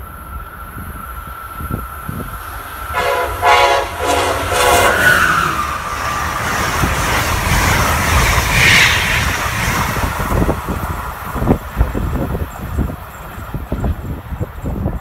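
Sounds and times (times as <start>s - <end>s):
train coaches rushing by: 0.0s - 15.0s
train horn blasts: 2.9s - 5.7s.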